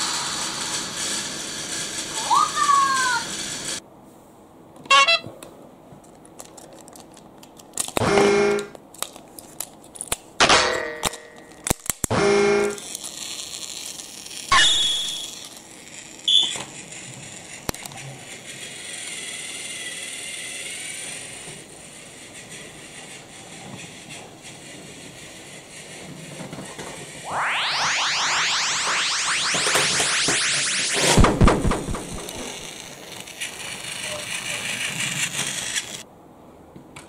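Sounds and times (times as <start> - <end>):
buzzing electronic tones: 14.5 - 15.3
high beeps: 14.5 - 15.3.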